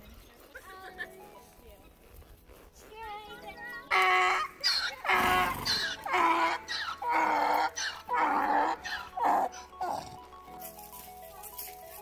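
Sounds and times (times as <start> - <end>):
donkey braying: 3.8 - 10.6.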